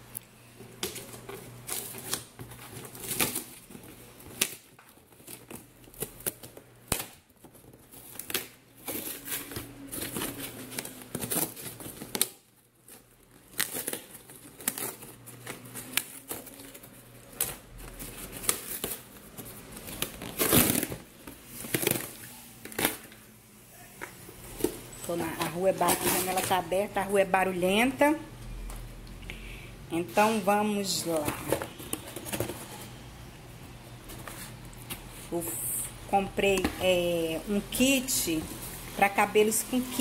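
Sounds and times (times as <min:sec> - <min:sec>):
cardboard box ripping and crinkling: 0:01.7 - 0:23.1.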